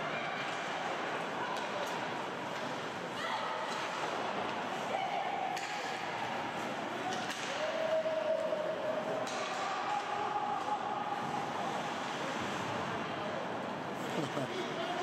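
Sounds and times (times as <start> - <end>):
voices echoing in arena: 0.0 - 15.0
hockey stick hitting puck: 7.1 - 7.6, 9.1 - 10.8.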